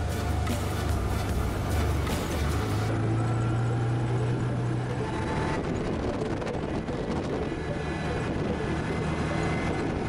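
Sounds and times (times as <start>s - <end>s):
tyres on gravel and bridge deck: 0.0s - 4.0s
atv engine hum: 0.0s - 10.0s.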